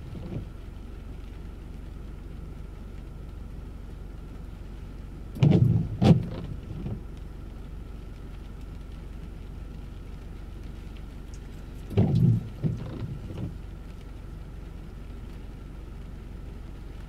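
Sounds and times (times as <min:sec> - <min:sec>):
low hum inside car cabin: 0:00.0 - 0:17.0
loud low bumps: 0:05.4 - 0:07.0, 0:11.9 - 0:13.6.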